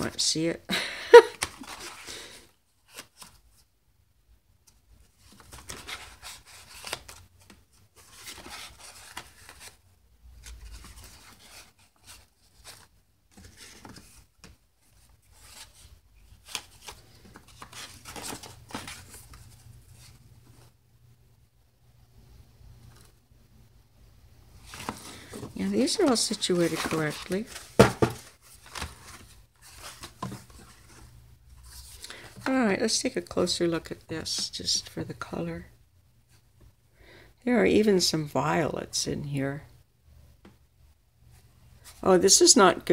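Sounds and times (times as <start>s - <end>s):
paper pages rustling: 1.2s - 3.7s, 4.6s - 20.8s, 24.5s - 33.0s.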